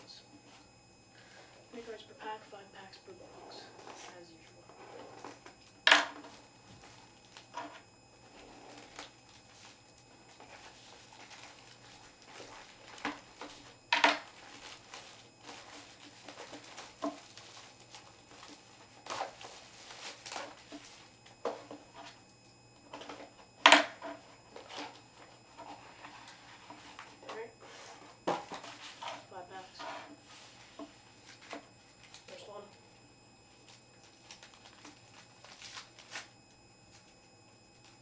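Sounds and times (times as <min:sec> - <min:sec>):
plastic wrapper rustling: 0:08.4 - 0:21.4, 0:30.2 - 0:32.5, 0:33.6 - 0:37.2.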